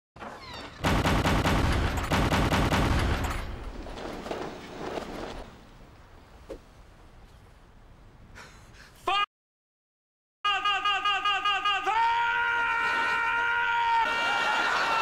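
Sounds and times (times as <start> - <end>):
rapid rattle of bangs: 0.7 - 5.1.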